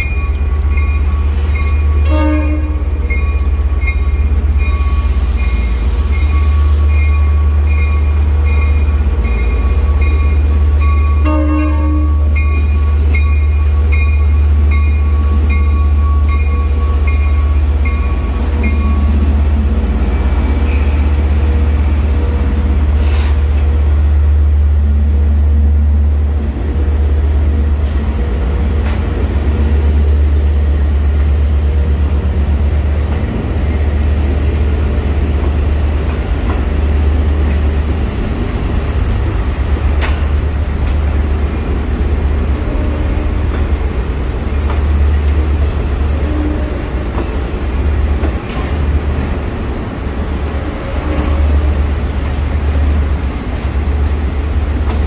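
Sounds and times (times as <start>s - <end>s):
crossing bell dinging: 0.0s - 19.4s
train rumbling past: 0.0s - 55.0s.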